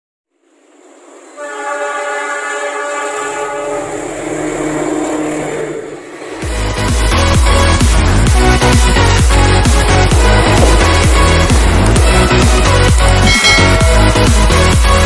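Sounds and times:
train engine rumble: 0.3s - 15.0s
locomotive horn blast: 1.4s - 6.1s, 10.1s - 15.0s.

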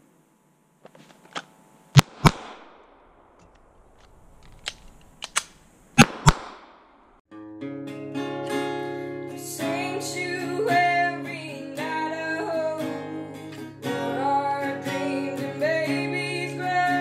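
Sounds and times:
pistol shots: 2.0s - 3.3s, 4.6s - 7.1s
light gun clicks: 3.5s - 6.5s
acoustic guitar music: 7.3s - 17.0s.

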